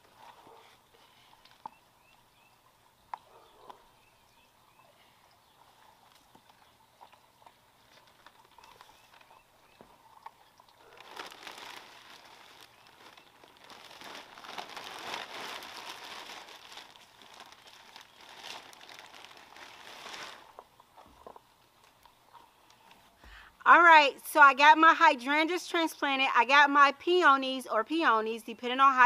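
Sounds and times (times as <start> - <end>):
paper sack crinkling: 10.8 - 21.4.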